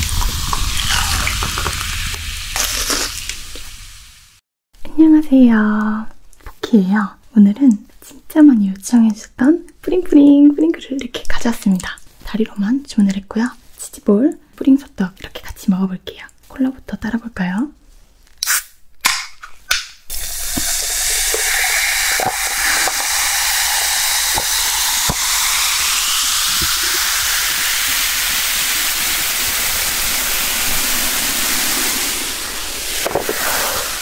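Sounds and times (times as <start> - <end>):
cola fizzing over ice: 0.0 - 3.7, 20.1 - 34.0
can opening clicks: 18.4 - 27.0.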